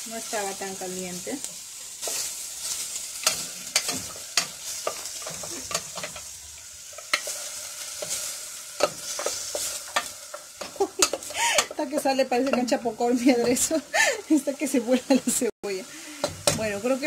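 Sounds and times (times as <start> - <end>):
onion sizzling in oil: 0.0 - 17.0
wooden spoon scraping a pot: 7.0 - 13.8.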